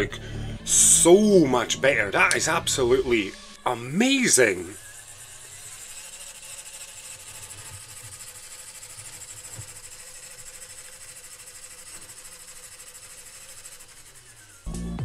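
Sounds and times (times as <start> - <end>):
electric motor fast whir: 3.4 - 14.9.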